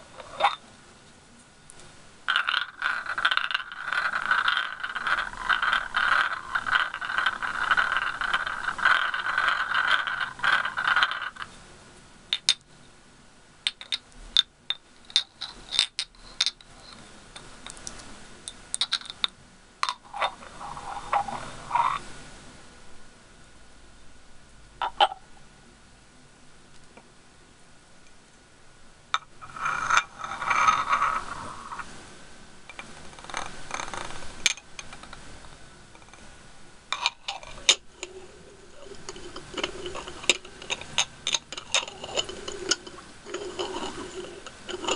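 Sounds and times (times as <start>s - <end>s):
glass scraping on glass: 0.0s - 0.6s, 2.3s - 11.6s, 15.1s - 17.0s, 18.7s - 22.1s, 29.2s - 32.0s, 32.7s - 35.2s, 35.9s - 36.3s, 36.9s - 44.9s
glass clinking: 36.9s - 44.9s.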